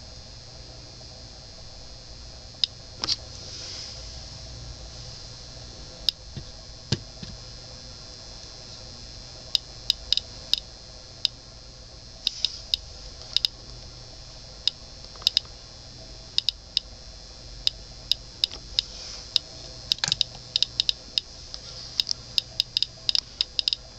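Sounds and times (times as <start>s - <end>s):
geiger counter clicking: 9.5s - 11.4s, 12.2s - 13.9s, 14.6s - 15.6s, 16.3s - 17.0s, 17.6s - 23.9s.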